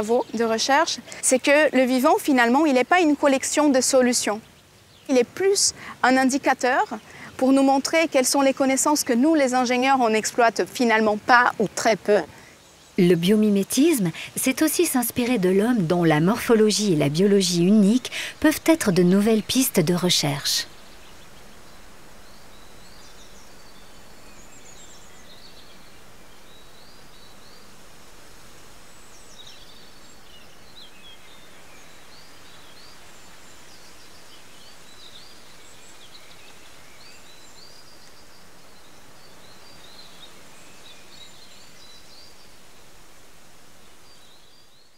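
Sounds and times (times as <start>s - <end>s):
small birds chirping: 0.0s - 44.9s
steady background hiss: 0.0s - 44.9s.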